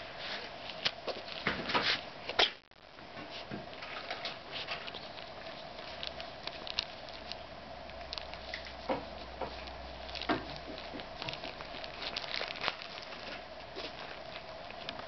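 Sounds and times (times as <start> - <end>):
plastic bag crinkling: 3.3 - 15.0.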